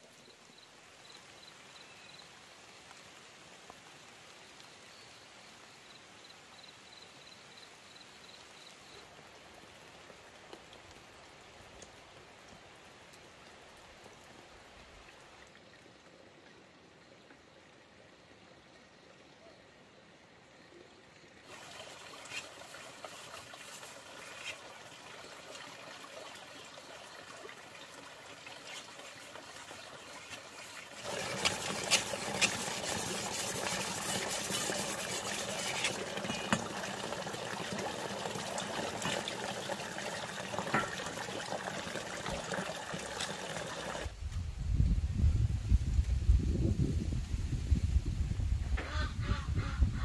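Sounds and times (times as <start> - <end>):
knife scraping on whetstone: 31.0 - 36.6.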